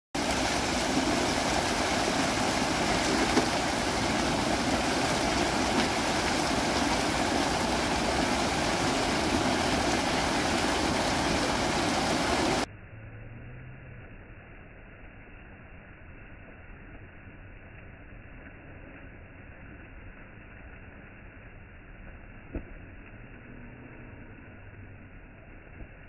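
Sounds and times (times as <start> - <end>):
fountain jets splashing: 0.1 - 12.7.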